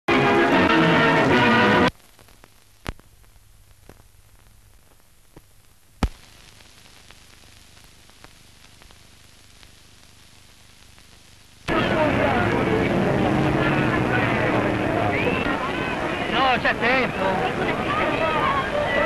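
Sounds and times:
film soundtrack hiss and crackle: 0.1 - 19.0
film clicks and pops: 1.9 - 9.8
ident music: 11.7 - 18.9.

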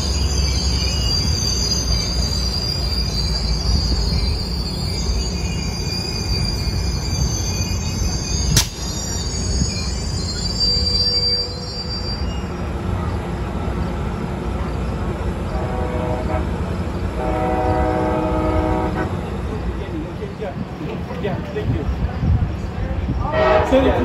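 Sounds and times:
wheels squealing: 0.0 - 13.4
train cars rumbling past: 0.0 - 24.0
sharp click: 8.5 - 8.9
train horn: 15.5 - 19.2, 23.2 - 24.0.

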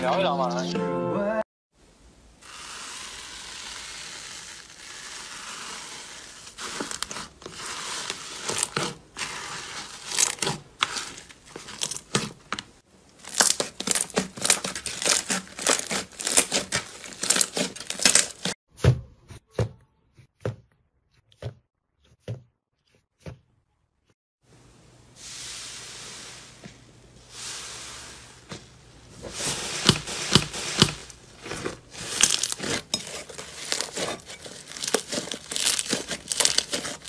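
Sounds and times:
slime crackling and popping: 13.2 - 18.6, 29.8 - 37.0.

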